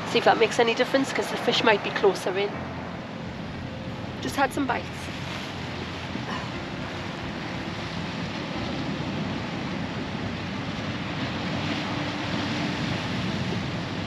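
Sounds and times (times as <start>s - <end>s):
sea surf washing over rocks: 0.0s - 14.0s
wind on microphone: 0.0s - 14.0s.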